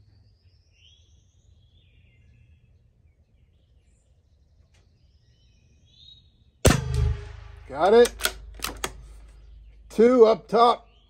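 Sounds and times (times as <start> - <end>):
faint bird chirps: 0.0 - 6.6
low rumble: 6.7 - 10.0.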